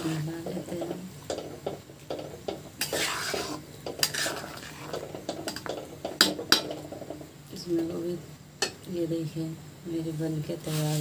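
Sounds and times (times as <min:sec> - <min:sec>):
spatula scraping a wok: 0:00.0 - 0:07.3, 0:10.6 - 0:11.0
gravy simmering: 0:00.0 - 0:08.9.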